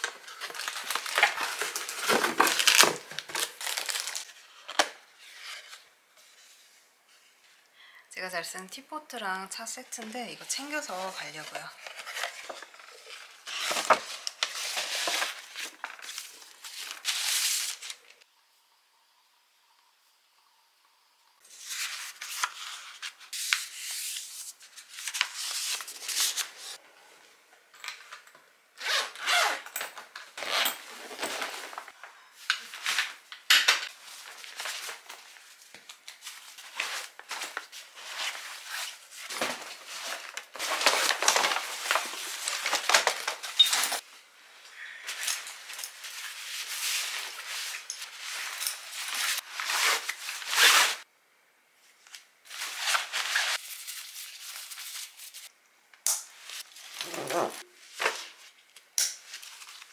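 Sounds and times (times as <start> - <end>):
paper rustling: 0.0 - 5.8, 10.6 - 18.1, 21.5 - 26.8, 30.9 - 44.1
nylon gear rustling and scraping: 28.8 - 33.2, 33.8 - 44.0, 45.0 - 51.0, 52.5 - 55.5, 56.4 - 58.5.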